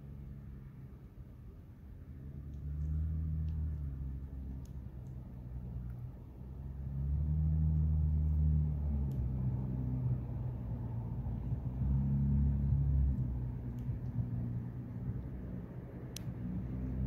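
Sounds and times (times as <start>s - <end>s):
engine rumble: 0.0s - 17.0s
faint clicks: 2.4s - 3.7s, 4.5s - 5.2s.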